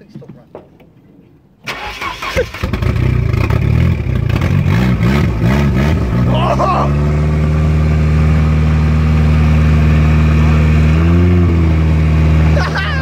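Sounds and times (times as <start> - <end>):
car engine revving and idling: 1.8 - 13.0.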